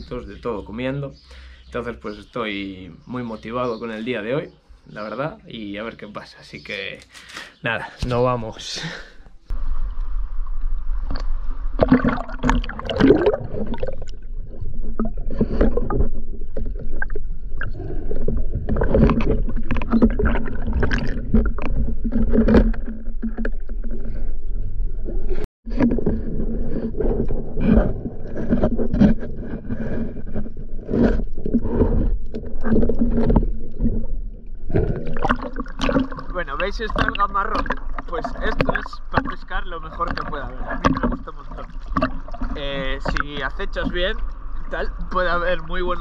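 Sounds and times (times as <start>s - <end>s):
water sloshing and splashing: 9.5s - 46.0s.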